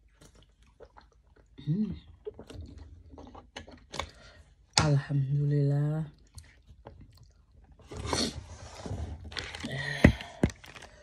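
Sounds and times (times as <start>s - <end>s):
plastic bottle clicks and crackles: 9.4s - 11.0s.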